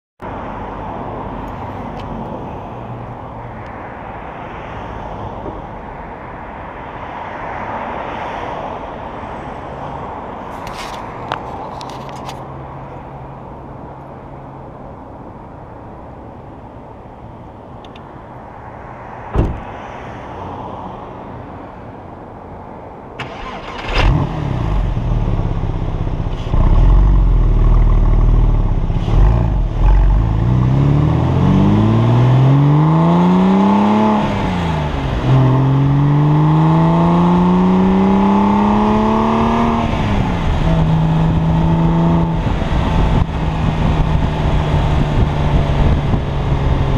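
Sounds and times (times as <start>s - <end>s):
car engine idling and accelerating: 8.9s - 20.2s, 21.0s - 46.9s.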